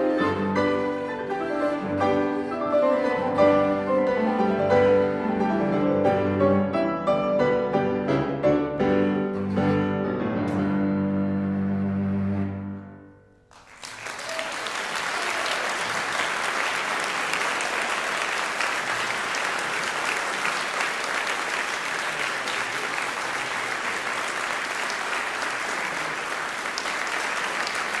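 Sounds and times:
audience applauding: 0:13.5 - 0:28.0.

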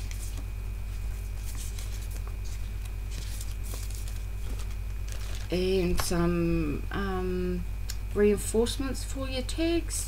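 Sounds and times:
paper and plastic rustling: 0:00.0 - 0:05.6
low electrical hum: 0:00.0 - 0:10.0.

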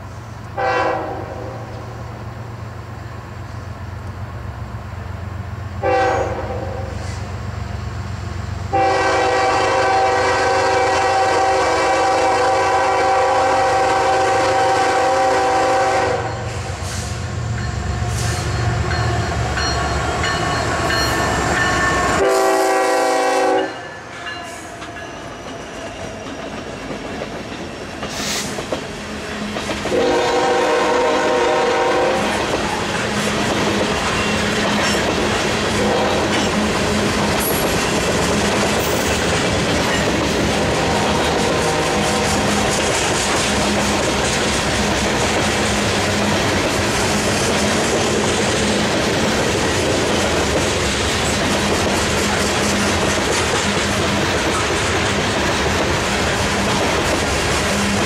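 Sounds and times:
locomotive engines rumbling: 0:00.0 - 0:58.0
locomotive air horn blasts: 0:00.6 - 0:01.6, 0:05.8 - 0:07.2, 0:08.7 - 0:17.2, 0:22.0 - 0:23.9, 0:29.9 - 0:32.4, 0:35.8 - 0:36.3, 0:40.8 - 0:42.6
train wheels clicking over rail joints: 0:24.1 - 0:30.6, 0:32.2 - 0:58.0.

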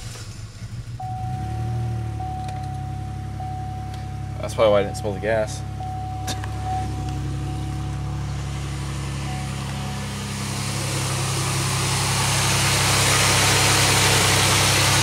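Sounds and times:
car engine idling: 0:00.0 - 0:15.0
steam hissing: 0:08.4 - 0:15.0.

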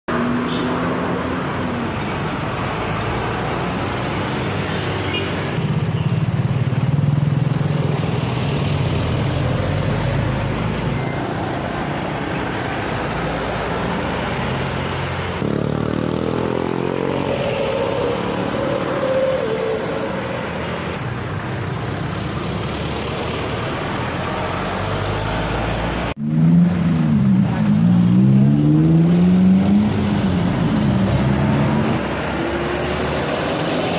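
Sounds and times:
road traffic: 0:00.1 - 0:33.9
trucks driving past: 0:00.1 - 0:33.9.

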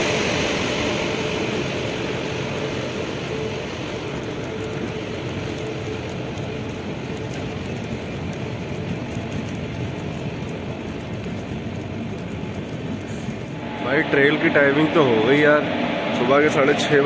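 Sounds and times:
train rumble and hiss: 0:00.0 - 0:17.0
faint hum: 0:12.2 - 0:17.0.

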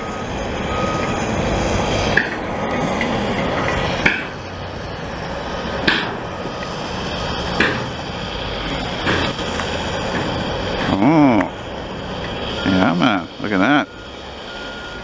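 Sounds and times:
heavy diesel machinery running: 0:00.0 - 0:15.0
sharp knocks: 0:04.0 - 0:04.4, 0:05.8 - 0:06.2, 0:07.6 - 0:08.0.

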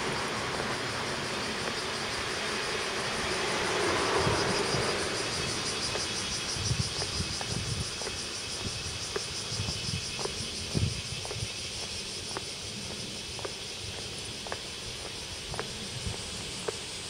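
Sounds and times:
steady high hiss: 0:00.0 - 0:17.0
footsteps clicking: 0:05.9 - 0:17.0.

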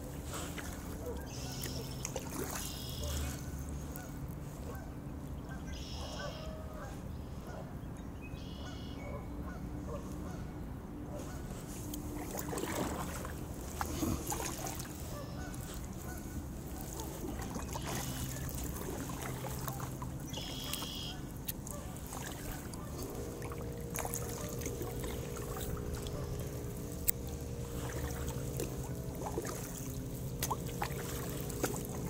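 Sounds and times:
paddle splashes and knocks: 0:00.0 - 0:04.0, 0:11.6 - 0:32.0
waterfowl honking: 0:00.3 - 0:07.7, 0:08.4 - 0:10.5, 0:11.1 - 0:32.0.

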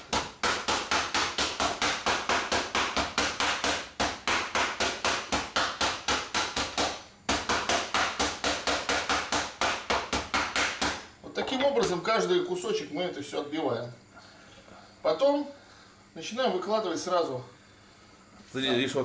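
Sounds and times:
mallet pounding meat: 0:00.0 - 0:11.1.

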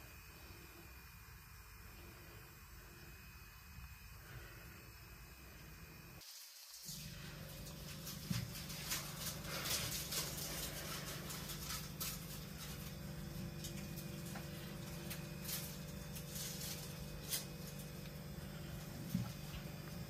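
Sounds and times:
faint clicks and rustles: 0:06.8 - 0:20.0.

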